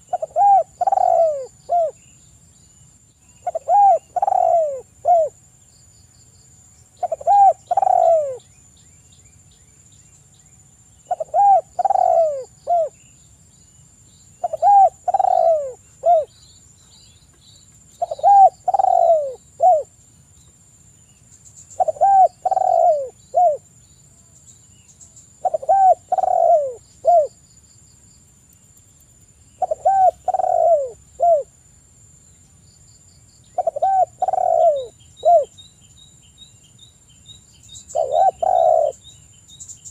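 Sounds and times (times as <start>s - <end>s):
dove cooing: 0.0s - 2.0s, 3.4s - 5.4s, 7.0s - 8.4s, 11.1s - 13.0s, 14.4s - 16.3s, 18.0s - 19.9s, 21.8s - 23.6s, 25.4s - 27.4s, 29.6s - 31.5s, 33.6s - 35.5s, 37.9s - 39.0s.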